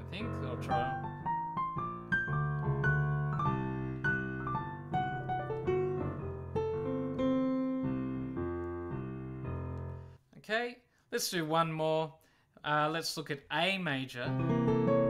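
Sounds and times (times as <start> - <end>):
jazz piano playing: 0.0 - 10.1, 14.3 - 15.0.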